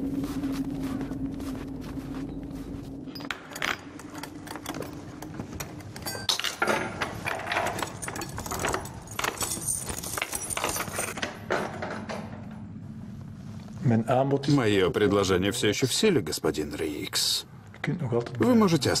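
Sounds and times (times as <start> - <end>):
low steady hum: 0.0 - 18.6
small metal pieces jangling: 3.2 - 11.2.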